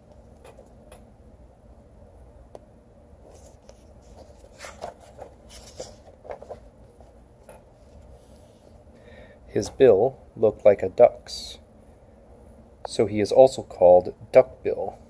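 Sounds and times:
book pages turning: 0:03.2 - 0:08.8.

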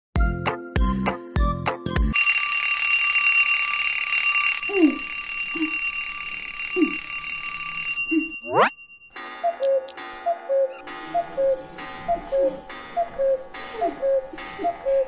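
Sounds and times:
jingle: 0:02.1 - 0:09.4
alarm clock ringing: 0:02.1 - 0:15.0.

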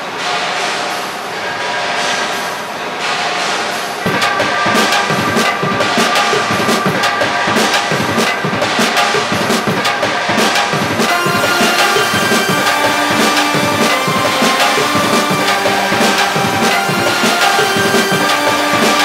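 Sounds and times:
background music with drums: 0:04.1 - 0:19.0.

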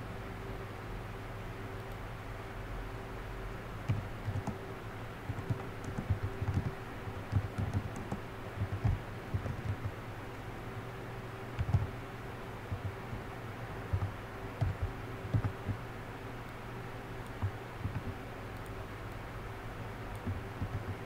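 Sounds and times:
steady background hum: 0:00.0 - 0:21.0
typing on keyboard: 0:03.9 - 0:04.6, 0:05.3 - 0:10.0, 0:11.6 - 0:11.9, 0:12.7 - 0:13.2, 0:13.9 - 0:15.8, 0:17.2 - 0:18.8, 0:20.2 - 0:21.0.

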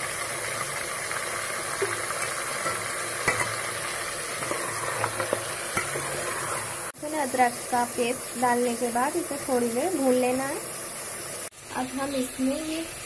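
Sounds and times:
chicken sizzling in hot oil: 0:00.0 - 0:13.0
ladle knocking against pot: 0:01.8 - 0:03.6.

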